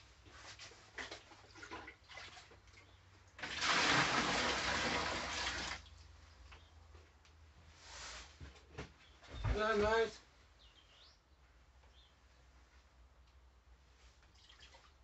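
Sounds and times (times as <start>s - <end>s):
water pouring into a tub: 1.0s - 2.6s, 3.3s - 6.0s, 14.3s - 15.0s
small water splashes: 1.0s - 6.0s, 14.3s - 15.0s.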